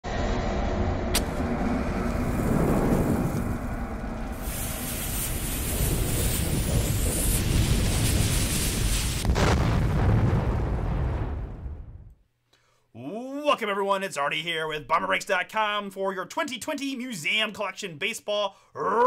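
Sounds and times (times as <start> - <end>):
low rumble: 0.0 - 12.2
bomb fuse hissing: 1.2 - 10.1.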